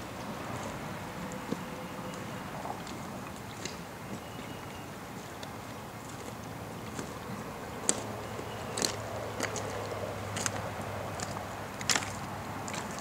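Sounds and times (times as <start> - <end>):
creek water washing: 0.0 - 13.0
footsteps on stones and gravel: 6.0 - 13.0.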